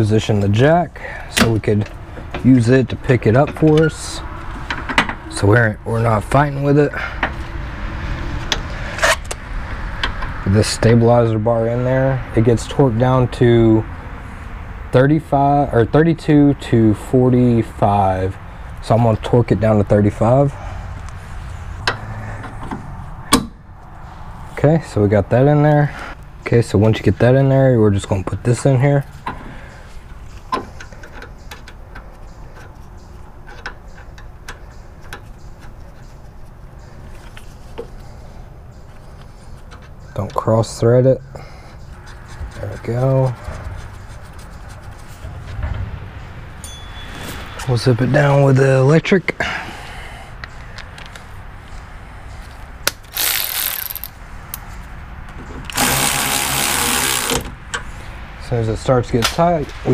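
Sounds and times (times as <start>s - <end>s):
electric ratchet motor whir: 53.1s - 54.1s, 55.7s - 57.5s.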